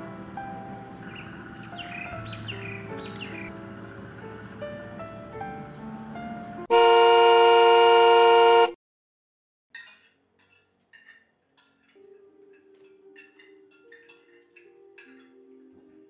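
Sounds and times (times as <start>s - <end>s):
soft music: 0.0s - 6.7s, 10.4s - 16.0s
car horn blast: 6.7s - 8.8s
cutlery clinking on plates: 9.7s - 16.0s.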